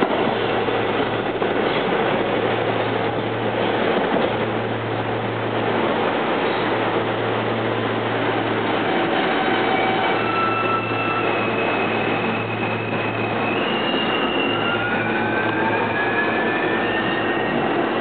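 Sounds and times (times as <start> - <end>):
train rolling on rails: 0.0 - 18.0
wheel squeal: 9.2 - 17.6.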